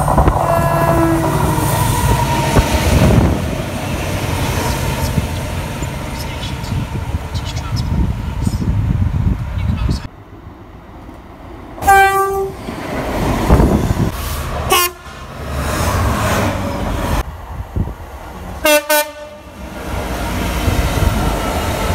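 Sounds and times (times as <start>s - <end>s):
train rumbling and clattering past: 0.0s - 21.9s
locomotive horn blasts: 0.4s - 1.6s, 11.8s - 12.6s, 14.7s - 15.1s, 18.6s - 19.5s.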